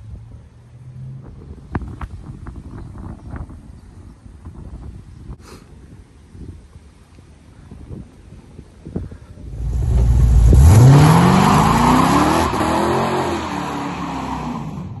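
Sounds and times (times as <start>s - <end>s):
car engine accelerating hard: 9.5s - 15.0s.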